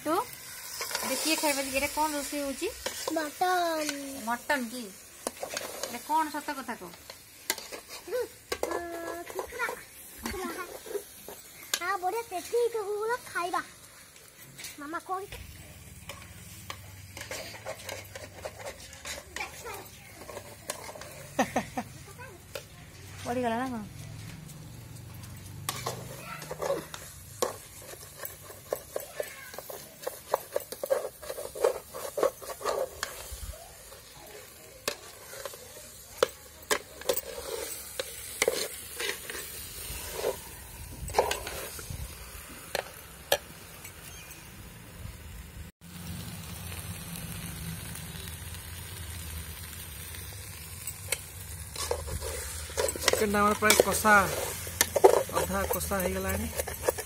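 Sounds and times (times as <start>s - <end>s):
spice paste sizzling: 0.0s - 57.0s
steel spatula scraping a pot: 0.1s - 13.3s, 16.0s - 21.8s, 25.6s - 42.0s, 50.8s - 57.0s.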